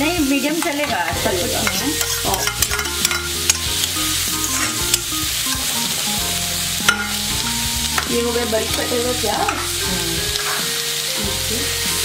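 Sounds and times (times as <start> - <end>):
onions sizzling in oil: 0.0 - 12.0
spoon scraping and clicking pan: 1.6 - 5.7, 6.9 - 7.2, 10.4 - 10.6.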